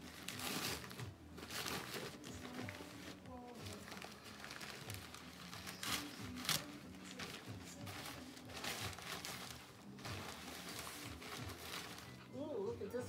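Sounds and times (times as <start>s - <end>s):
loud crackles of wrapping: 0.0s - 12.3s
wrapping crinkling and rustling: 0.0s - 13.0s.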